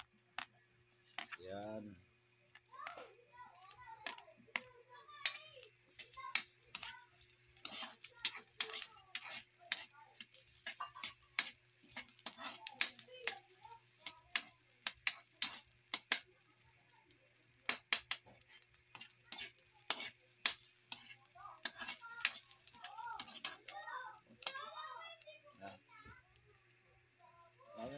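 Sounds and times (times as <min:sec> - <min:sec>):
faint frying sizzle: 0:00.0 - 0:27.9
metal spatula scraping wok: 0:06.0 - 0:13.5, 0:14.4 - 0:16.2, 0:18.3 - 0:23.8.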